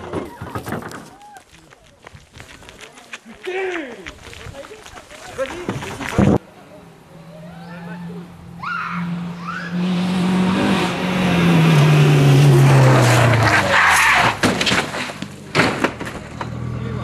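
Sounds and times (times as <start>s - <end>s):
tyres on gravel: 0.0s - 6.4s, 12.2s - 17.0s
rally car engine passing: 6.6s - 17.0s.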